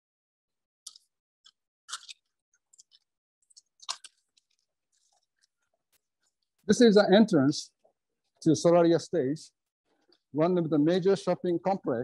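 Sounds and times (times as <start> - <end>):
faint clicks and scuffs: 2.7 - 6.8.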